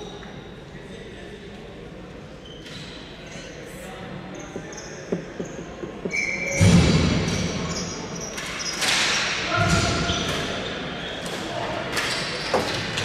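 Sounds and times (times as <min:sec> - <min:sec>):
sneakers squeaking: 0:02.4 - 0:11.3
sticks and ball clacking: 0:04.5 - 0:06.2.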